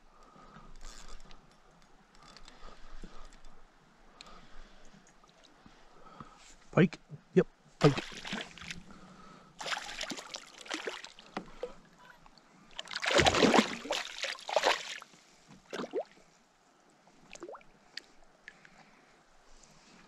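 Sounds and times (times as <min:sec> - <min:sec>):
fish splashing at the surface: 0:07.8 - 0:08.8, 0:09.6 - 0:11.2, 0:12.8 - 0:15.0.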